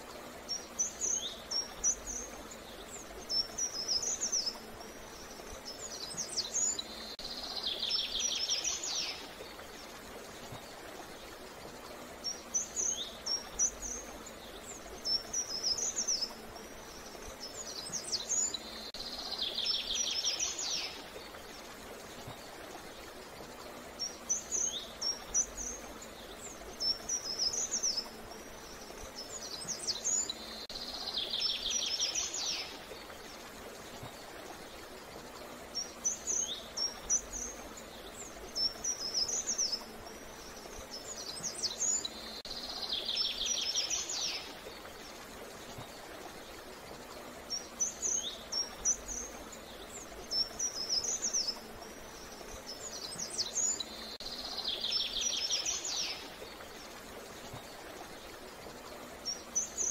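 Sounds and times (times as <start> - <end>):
outdoor background hiss: 0.0 - 59.9
songbird chirping and trilling: 0.2 - 9.6, 11.9 - 21.4, 23.6 - 33.4, 35.2 - 45.0.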